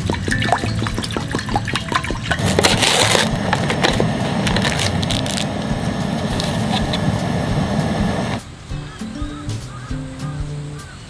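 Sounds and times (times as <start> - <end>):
paper lid crinkling: 0.0 - 7.2.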